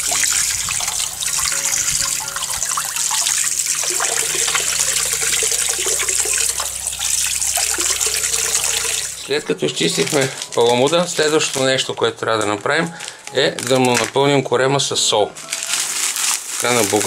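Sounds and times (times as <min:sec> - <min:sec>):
water pouring into a basin: 0:00.0 - 0:11.4
hand rinsing fish: 0:00.0 - 0:11.8.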